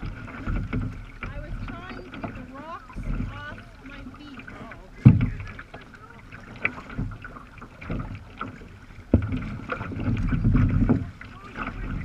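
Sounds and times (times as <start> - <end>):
water splashing against kayak hull: 0.0 - 12.0
wind on microphone: 9.1 - 12.0.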